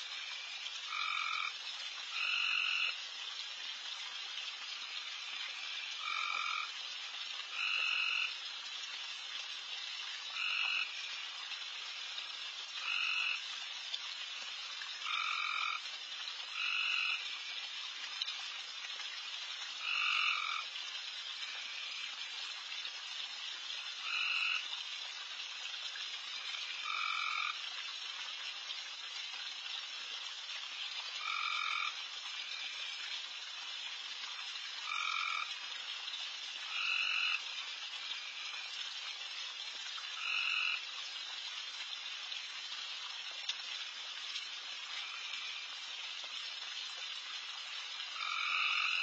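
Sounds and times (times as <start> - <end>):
chorus of frogs calling: 0.2 - 3.0, 5.2 - 6.8, 7.5 - 8.3, 10.3 - 11.1, 12.8 - 13.4, 15.0 - 15.8, 16.5 - 17.5, 19.8 - 20.7, 24.0 - 24.7, 26.4 - 27.6, 31.2 - 33.0, 34.8 - 35.5, 36.7 - 37.5, 40.2 - 40.8, 48.2 - 49.0
loud single frog call: 0.9 - 1.5, 19.8 - 20.7, 34.8 - 35.5, 48.2 - 49.0.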